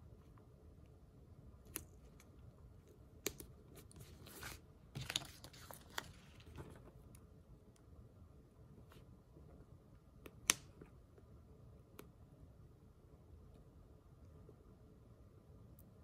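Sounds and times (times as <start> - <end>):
sticker paper crinkling: 3.2 - 6.8.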